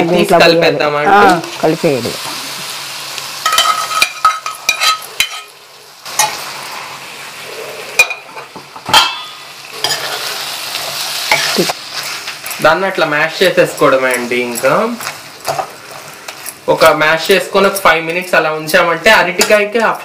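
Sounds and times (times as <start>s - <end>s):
light frying sizzle: 0.0s - 20.0s
spatula scraping a pan: 3.4s - 8.5s, 9.1s - 12.6s.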